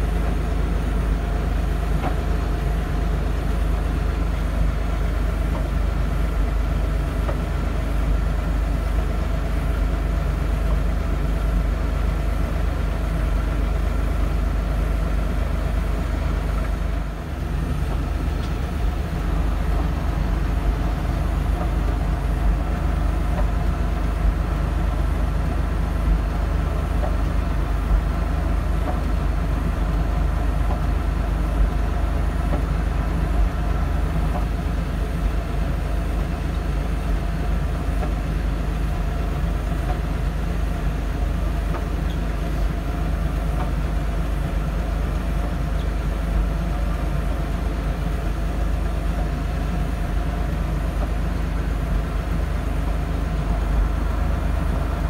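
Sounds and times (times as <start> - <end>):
diesel engine drone: 0.0 - 55.0
snowblower whine: 13.5 - 35.9.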